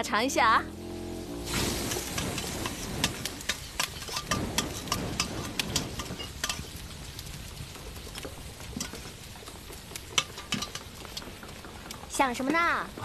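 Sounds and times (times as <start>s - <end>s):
food sizzling: 0.0s - 13.0s
kitchen utensils clattering: 1.8s - 6.8s, 10.1s - 11.9s.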